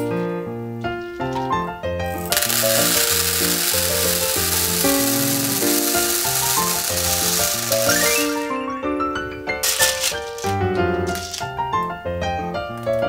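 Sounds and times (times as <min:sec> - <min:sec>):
piano background music: 0:00.0 - 0:13.0
beads pouring into a plastic tray: 0:02.1 - 0:08.6, 0:09.6 - 0:11.7.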